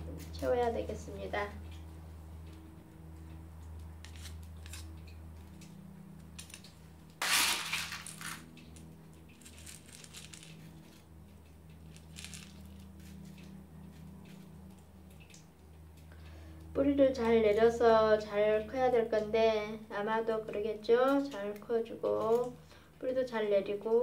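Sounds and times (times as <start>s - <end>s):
steady low hum: 0.0s - 24.0s
pebbles clicking together: 7.2s - 11.0s, 11.7s - 13.2s
grit pouring: 12.0s - 12.8s.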